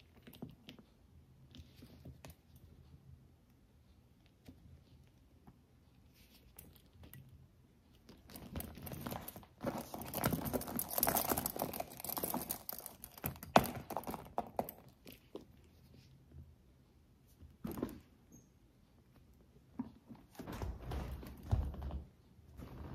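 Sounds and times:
bag handling rustling and clicks: 8.3 - 14.7.

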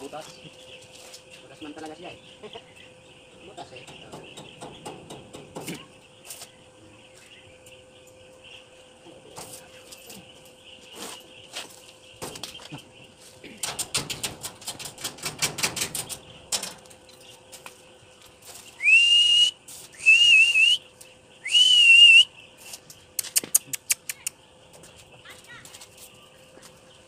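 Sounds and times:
loud whistles: 18.8 - 20.8, 21.4 - 22.3.

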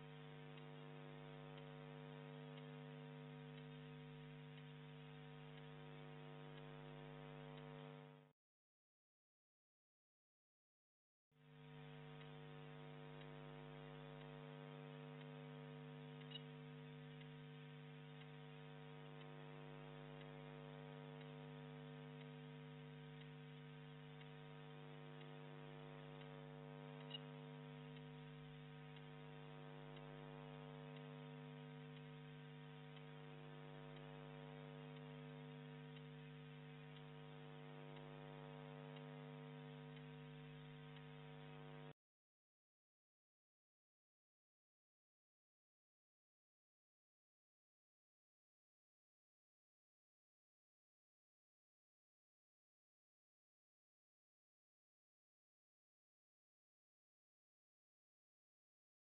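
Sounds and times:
faint electrical hum: 0.0 - 8.3, 11.4 - 42.0
tiny clicks: 15.0 - 38.8.

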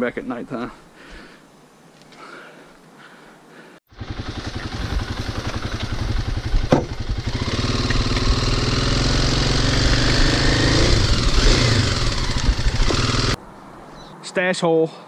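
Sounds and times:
motorcycle engine accelerating: 3.9 - 13.4
sharp knock: 6.6 - 7.0.

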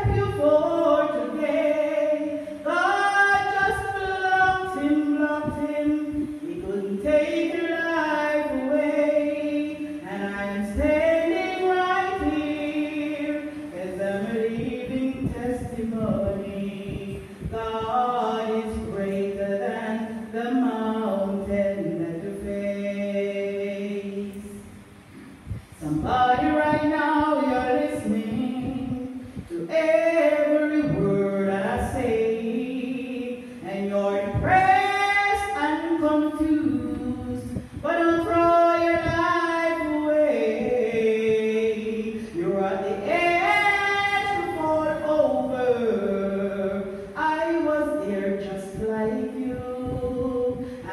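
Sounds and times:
voices singing a hymn: 0.0 - 24.8, 25.8 - 50.9.

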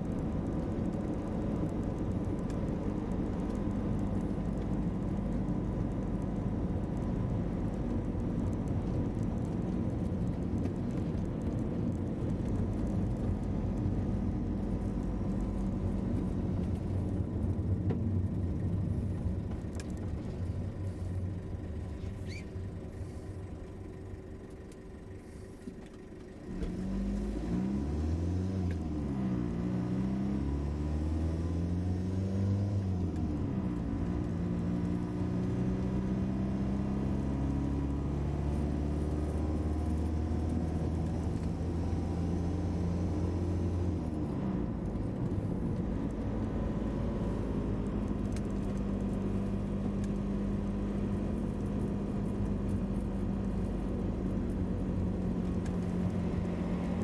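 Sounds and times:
engine and road rumble: 0.0 - 57.0.

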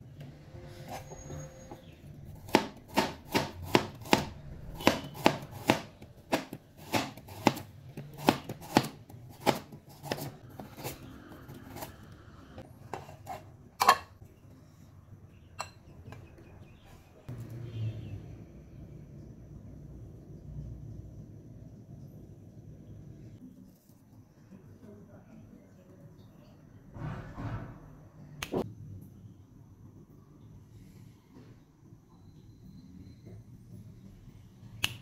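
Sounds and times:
cleaver chopping on wooden board: 2.5 - 10.3.

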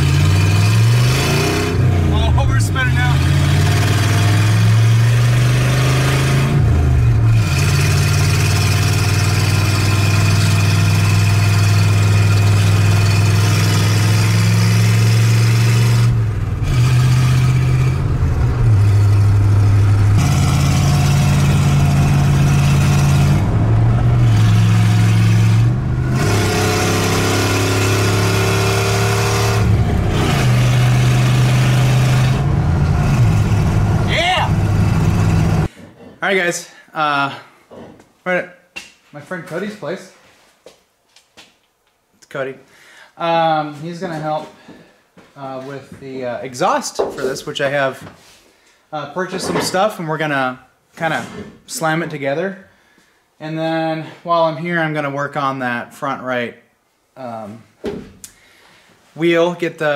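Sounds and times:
truck engine without exhaust: 0.0 - 35.7.

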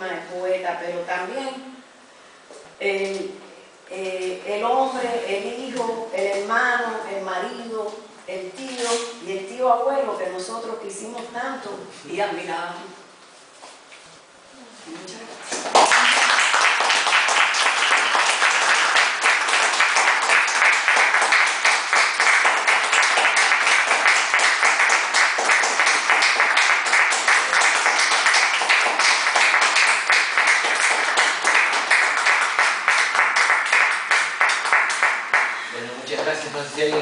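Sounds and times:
audience applauding: 15.5 - 35.6.

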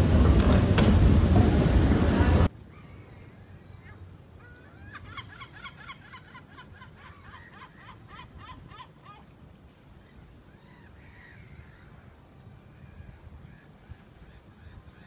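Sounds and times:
bird calling: 2.6 - 9.3, 10.0 - 15.0.

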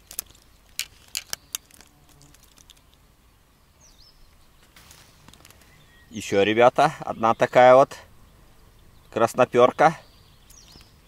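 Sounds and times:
fishing tackle clicking: 0.0 - 3.0.

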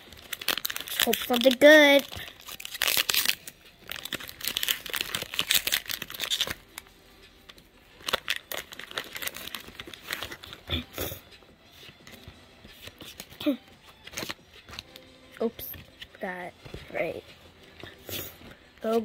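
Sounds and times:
foil wrapper crinkling and tearing: 0.0 - 6.9, 7.9 - 10.8, 14.0 - 14.9.

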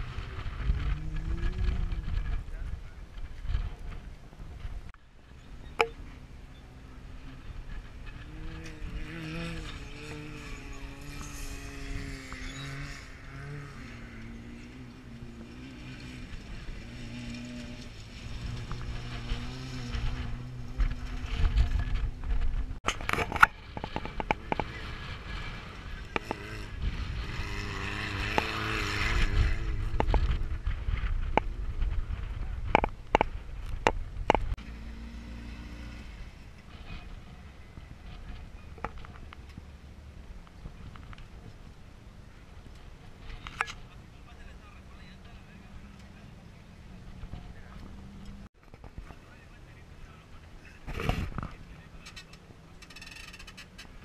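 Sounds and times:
distant engine revving: 5.6 - 40.0.

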